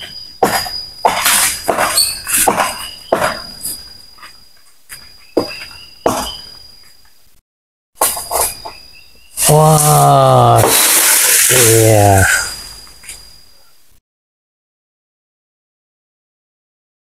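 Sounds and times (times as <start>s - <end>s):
high insect buzz: 8.0s - 14.0s
blade chopping branches: 9.4s - 11.8s.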